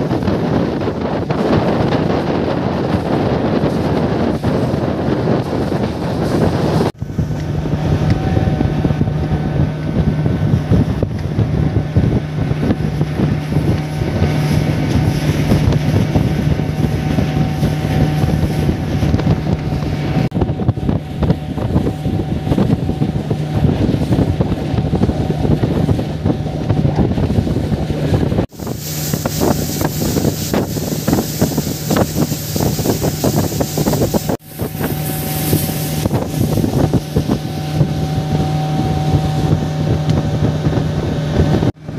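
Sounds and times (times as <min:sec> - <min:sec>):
motorboat engine droning: 0:00.0 - 0:41.9
wind buffeting microphone: 0:00.0 - 0:41.9
water hissing: 0:28.5 - 0:39.8.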